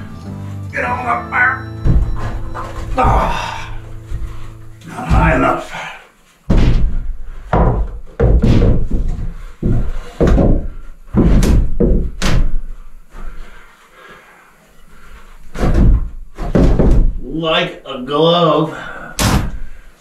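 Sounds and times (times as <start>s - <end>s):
heavy wooden thuds and knocks: 1.8s - 5.9s, 6.5s - 13.4s, 15.4s - 17.2s, 19.2s - 19.8s.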